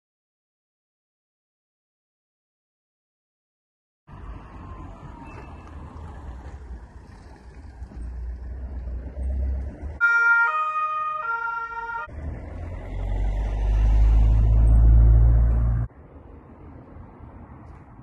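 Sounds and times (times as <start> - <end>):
two-tone police siren: 10.0 - 12.1.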